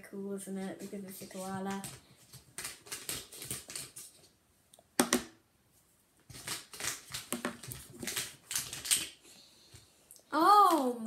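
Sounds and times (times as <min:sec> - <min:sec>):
plastic pens clicking and clattering: 0:01.7 - 0:04.2, 0:06.3 - 0:09.2.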